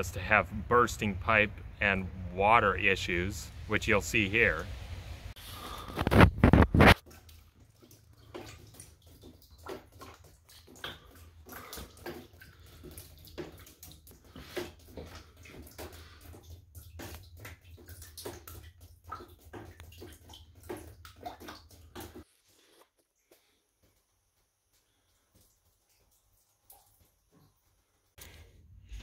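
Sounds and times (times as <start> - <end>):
water dripping and splashing: 0.0 - 22.3, 24.6 - 29.0.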